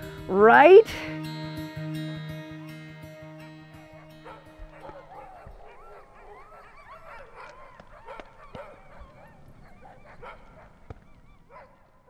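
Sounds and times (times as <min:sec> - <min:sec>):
sled dogs yelping and barking: 0:03.7 - 0:12.0.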